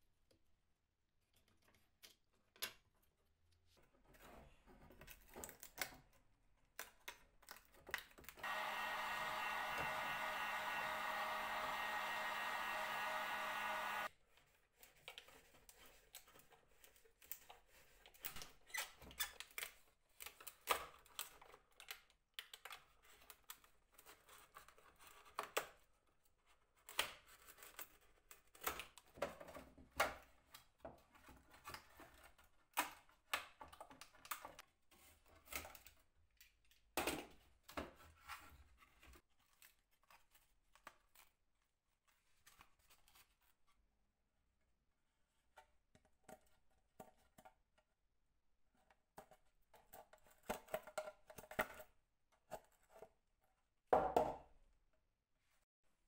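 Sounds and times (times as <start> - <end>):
small electric motor tool running: 8.4 - 14.1.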